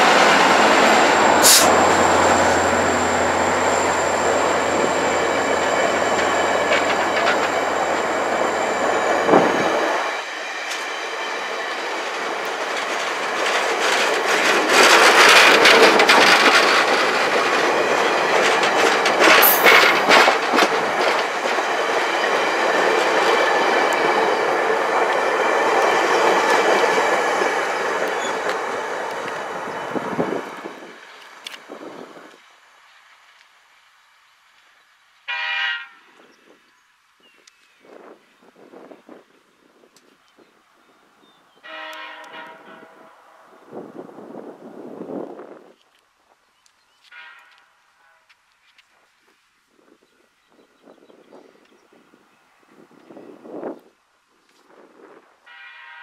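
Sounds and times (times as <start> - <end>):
wheels clicking over rail joints: 0.0 - 9.5, 11.9 - 31.8
passenger train rolling past: 0.0 - 33.2.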